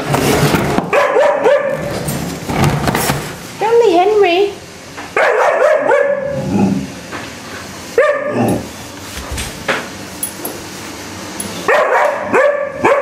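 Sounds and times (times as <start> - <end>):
puppy barking and howling: 5.2 - 6.3, 11.7 - 13.0.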